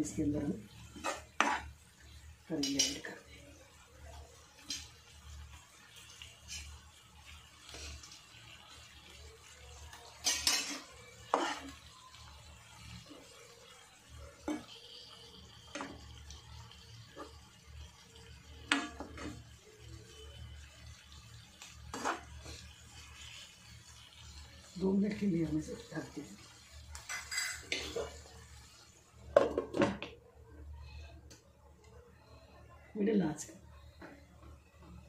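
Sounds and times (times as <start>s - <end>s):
utensils scraping a frying pan: 0.8s - 1.8s, 6.4s - 6.8s, 10.2s - 11.8s, 14.4s - 14.8s, 21.9s - 23.4s, 26.9s - 28.3s.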